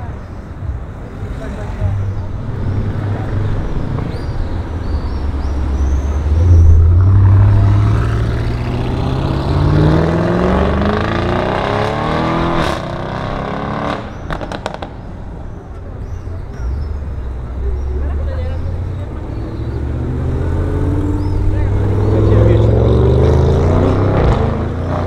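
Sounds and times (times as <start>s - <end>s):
car engine accelerating hard: 5.7s - 14.8s, 19.0s - 25.0s.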